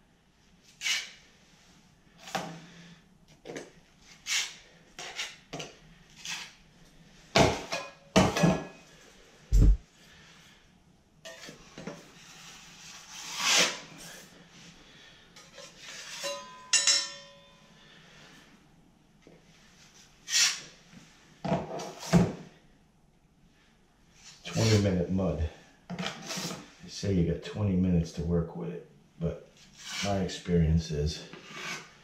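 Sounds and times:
drywall knife scraping metal pan: 0:12.2 - 0:13.9, 0:15.4 - 0:16.6, 0:24.5 - 0:24.9, 0:26.0 - 0:26.7, 0:29.7 - 0:30.2, 0:31.3 - 0:32.0
metallic clang: 0:16.2 - 0:17.6.

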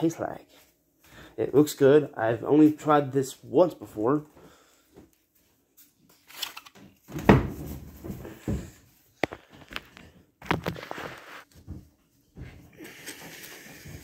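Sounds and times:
rustling: 0:09.3 - 0:11.7.

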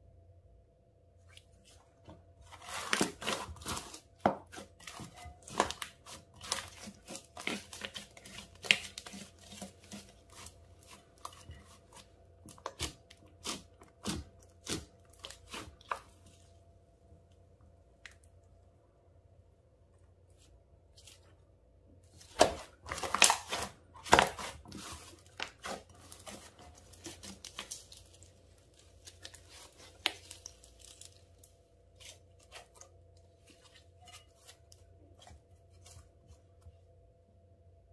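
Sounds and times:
slime crackling and tearing: 0:02.5 - 0:16.0, 0:22.3 - 0:32.8.

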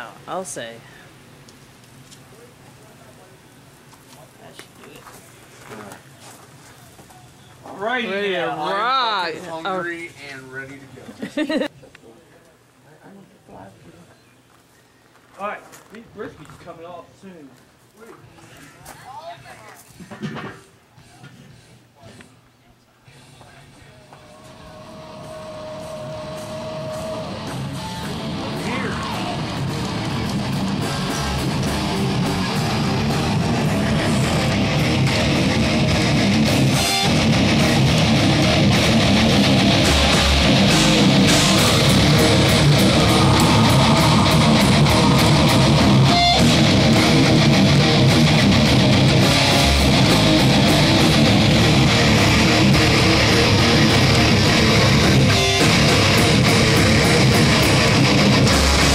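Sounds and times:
heavy metal band playing: 0:24.6 - 0:58.9.

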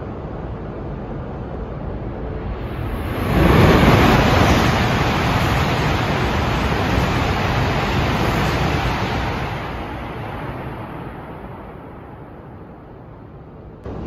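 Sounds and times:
bullet train passing at speed: 0:00.0 - 0:14.0.

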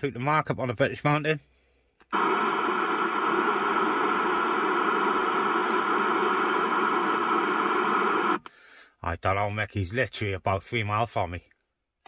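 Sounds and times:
radio static hiss: 0:02.1 - 0:08.4.

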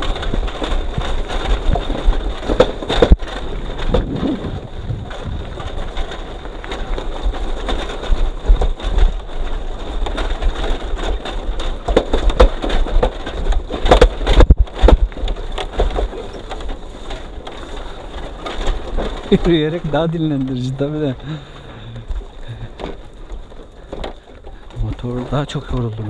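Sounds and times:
wind buffeting microphone: 0:00.0 - 0:16.6
rattling and knocking from jolts: 0:00.0 - 0:26.0.

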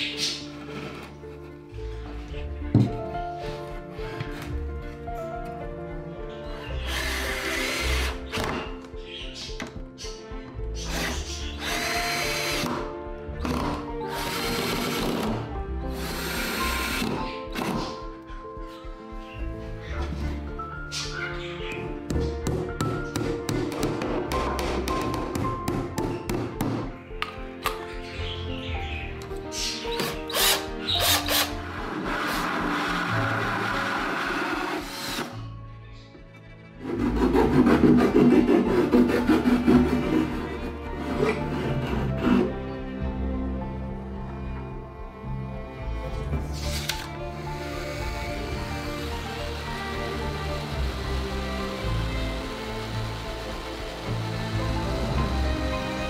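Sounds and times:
background music: 0:00.0 - 0:56.0
cordless drill motor whining: 0:06.8 - 0:08.3, 0:10.9 - 0:12.7, 0:14.1 - 0:17.1, 0:30.0 - 0:35.3, 0:46.6 - 0:56.0
rasping strokes by hand: 0:36.8 - 0:42.6.

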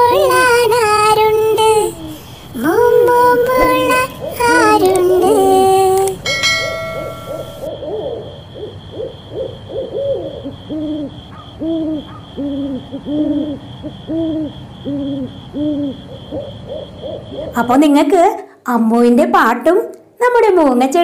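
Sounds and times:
owl hooting: 0:00.0 - 0:17.8
short ringing chime: 0:06.2 - 0:07.7.

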